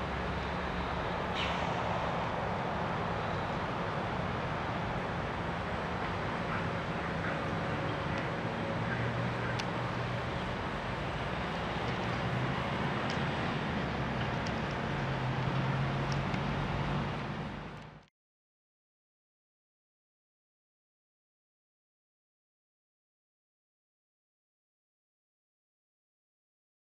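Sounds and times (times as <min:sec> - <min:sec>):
crane diesel engine humming: 0:00.0 - 0:18.0.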